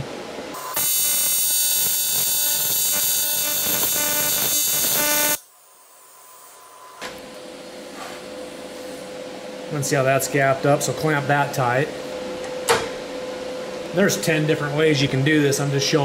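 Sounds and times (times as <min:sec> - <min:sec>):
welding arc buzzing: 0:00.0 - 0:06.7.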